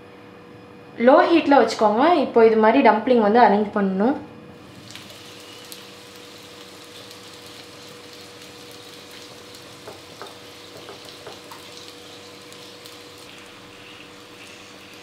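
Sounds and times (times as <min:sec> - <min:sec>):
dumplings sizzling in a pan: 0:04.6 - 0:15.0.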